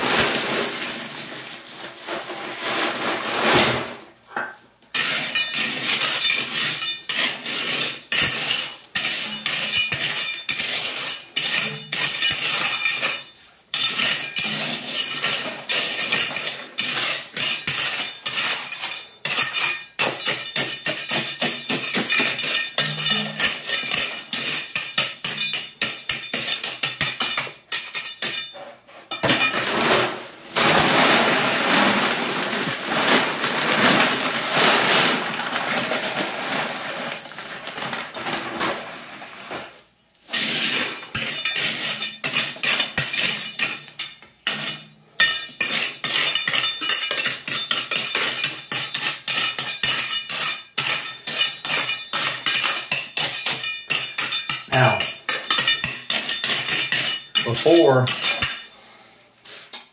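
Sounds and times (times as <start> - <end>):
gravel scraping against a trowel: 4.9 - 25.6, 38.5 - 43.8.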